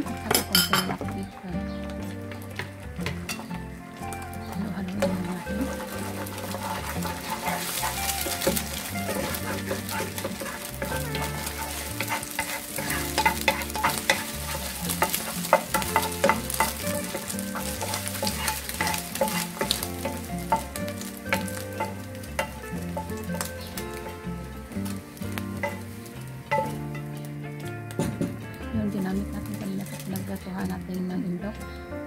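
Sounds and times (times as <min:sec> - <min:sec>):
spatula tapping and scraping pan: 0:00.0 - 0:01.2, 0:01.8 - 0:28.5, 0:29.4 - 0:30.2
eggs sizzling in a frying pan: 0:00.0 - 0:32.0.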